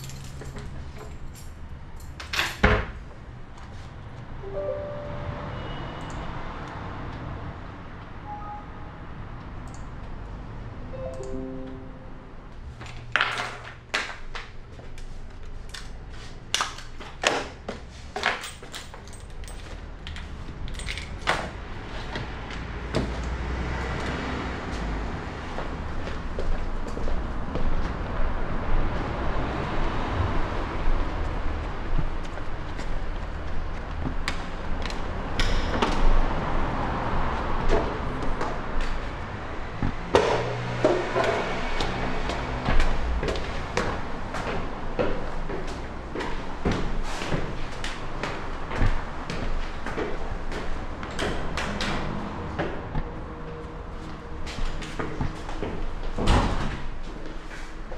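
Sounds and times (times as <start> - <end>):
footsteps on concrete floor: 37.7 - 56.2.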